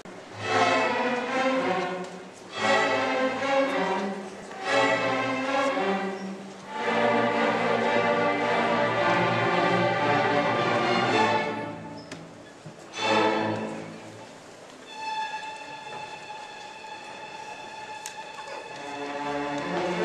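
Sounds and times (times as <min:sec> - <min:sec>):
string orchestra playing fiddle tune: 0:00.0 - 0:20.0.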